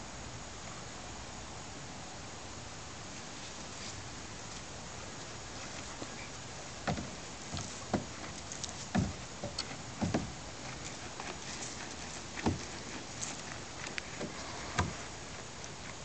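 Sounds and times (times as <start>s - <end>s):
puppy paws scraping dirt: 3.4s - 16.0s.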